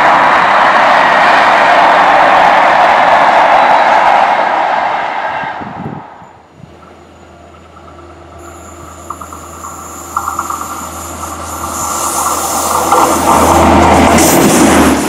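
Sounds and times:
high whine of wheels on rails: 0.0 - 15.0
rail vehicle low drone: 0.0 - 15.0
rapid light ticking: 7.6 - 13.4.

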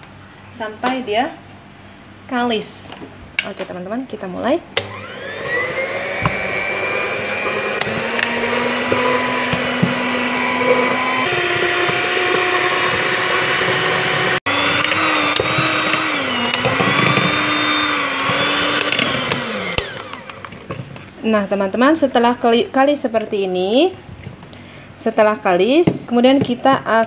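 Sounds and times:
electric mixer kneading dough: 4.8 - 20.8.

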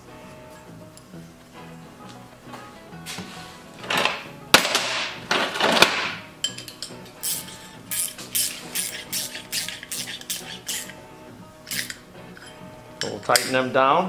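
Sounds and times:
faint background music: 0.0 - 14.0
metal bolts clinking: 3.8 - 11.0, 11.6 - 13.7
sharp metal clink: 11.7 - 13.6.

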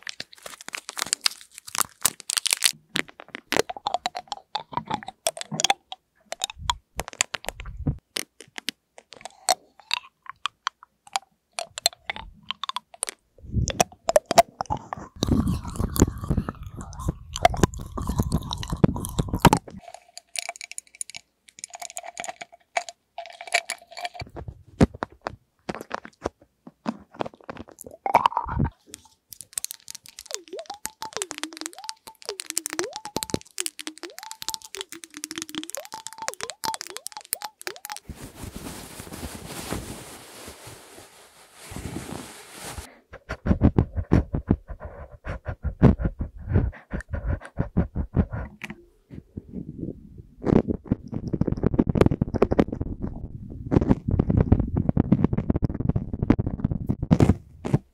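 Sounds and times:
hard candy clacking against teeth: 0.0 - 38.1
candy wrapper crinkling: 0.0 - 42.9.

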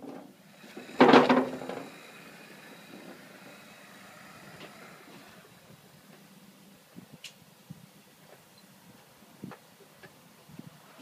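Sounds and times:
plastic wheels hitting metal ramps: 0.0 - 1.9
loud metallic clatter: 0.0 - 2.0
toy rolling on metal deck: 0.0 - 5.7.

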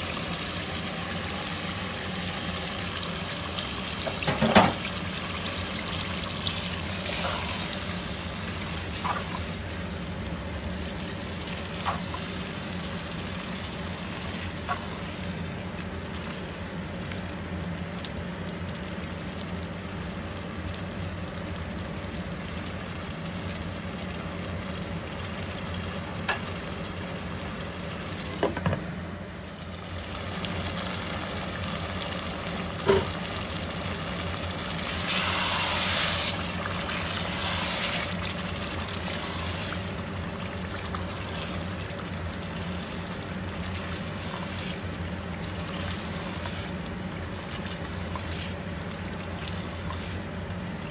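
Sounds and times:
food sizzling in a pot: 0.0 - 17.9, 22.2 - 28.8, 29.4 - 50.9.

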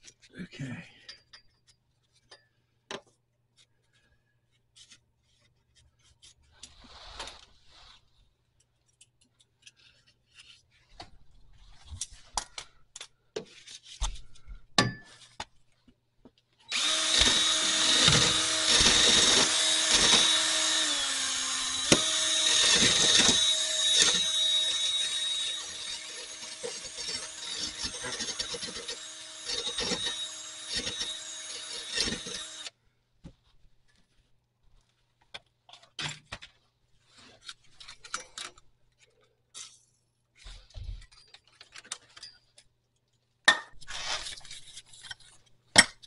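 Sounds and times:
cordless drill with wire brush: 16.7 - 32.8.

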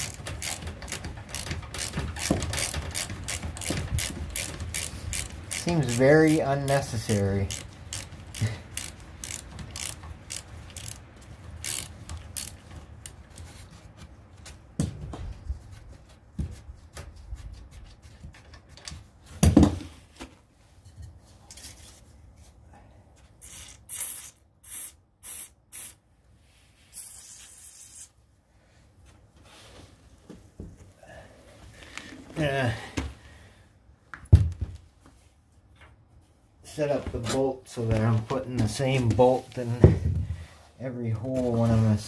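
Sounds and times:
hand tools on metal: 0.0 - 13.1.

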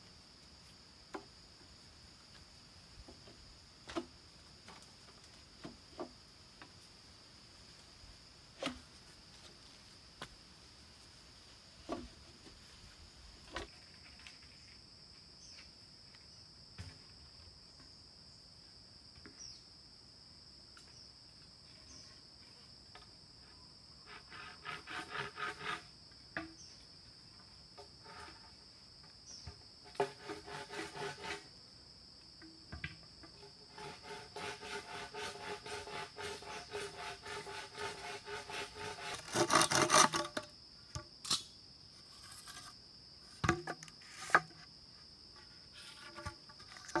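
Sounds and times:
insects droning: 0.0 - 47.0
hand saw cutting bamboo: 24.1 - 25.9, 29.8 - 31.5, 33.6 - 40.5.

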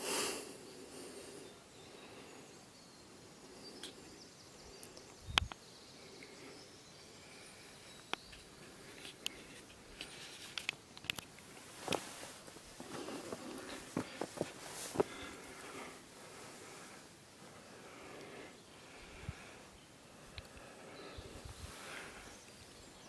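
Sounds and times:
footsteps on stony ground: 11.5 - 15.8.

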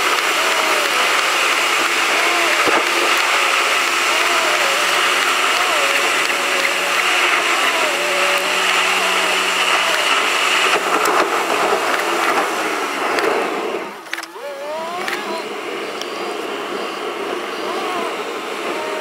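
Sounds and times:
car engine whine: 0.0 - 19.0.

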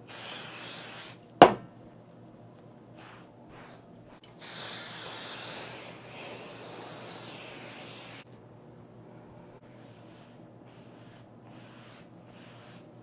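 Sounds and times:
aerosol can spraying: 0.0 - 1.2, 4.4 - 8.2.

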